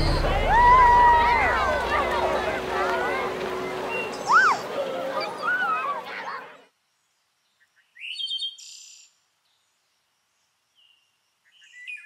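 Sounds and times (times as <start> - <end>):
rising electronic sweep: 0.0 - 5.2.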